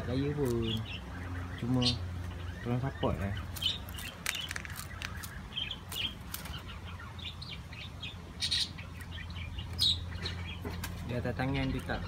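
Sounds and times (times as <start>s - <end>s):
seed rattling: 3.5s - 5.4s.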